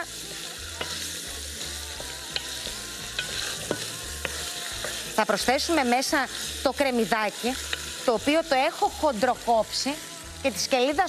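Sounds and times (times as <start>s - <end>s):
meat sizzling in hot oil: 0.0s - 11.0s
wooden spatula stirring: 1.6s - 6.8s.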